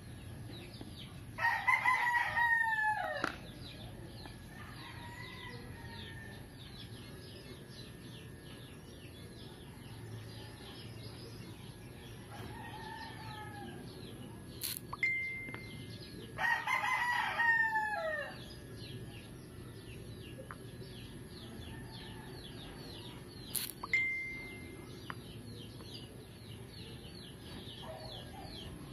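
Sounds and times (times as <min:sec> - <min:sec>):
rooster crowing: 0:01.4 - 0:03.4, 0:04.5 - 0:06.5, 0:12.3 - 0:14.0, 0:16.4 - 0:18.5
faint chirping: 0:03.5 - 0:16.5, 0:18.2 - 0:28.9
sharp clicks: 0:14.6 - 0:15.6, 0:23.5 - 0:24.0.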